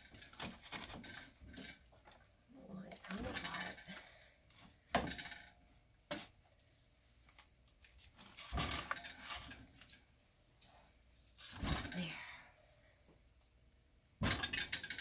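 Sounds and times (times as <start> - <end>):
hard objects clattering and scraping: 8.0 - 10.0.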